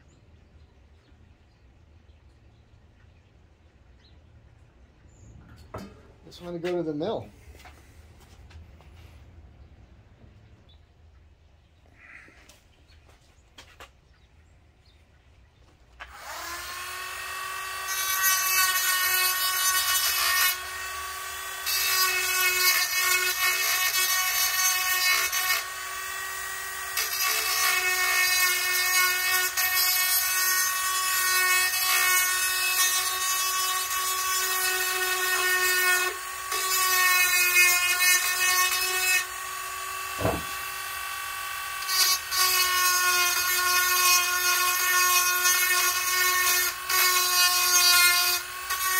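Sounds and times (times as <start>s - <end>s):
rotary tool whining: 16.0s - 48.9s.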